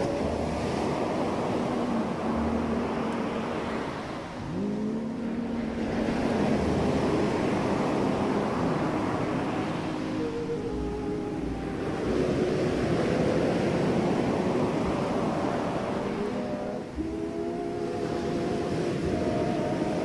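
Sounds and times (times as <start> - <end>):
ocean surf washing in: 0.0 - 20.0.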